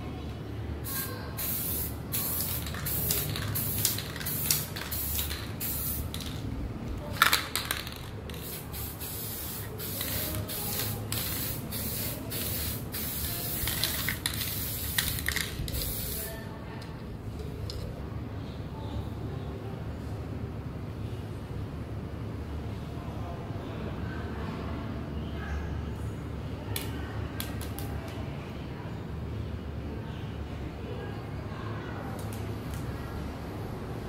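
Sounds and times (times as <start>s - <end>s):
aerosol spray can hissing: 0.9s - 6.3s, 8.3s - 16.3s.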